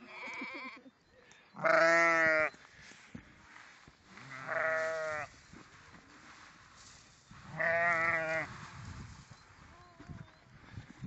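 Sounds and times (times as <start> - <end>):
sheep bleating: 1.6 - 2.6, 4.1 - 5.3, 7.5 - 8.5.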